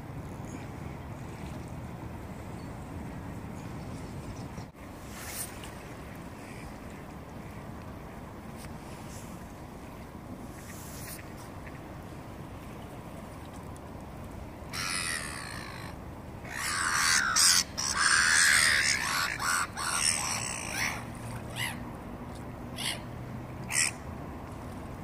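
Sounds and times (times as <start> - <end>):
gulls screeching: 14.7 - 21.9, 22.7 - 24.1.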